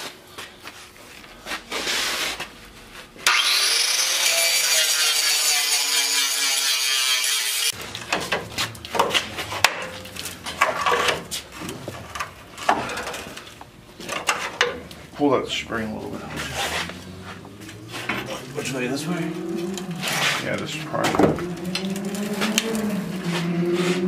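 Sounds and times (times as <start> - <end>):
angle grinder cutting steel: 3.2 - 7.8.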